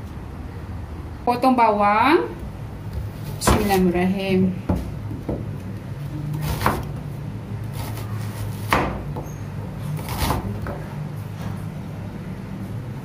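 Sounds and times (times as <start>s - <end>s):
knife cutting onion on board: 6.3s - 7.0s, 7.6s - 10.8s.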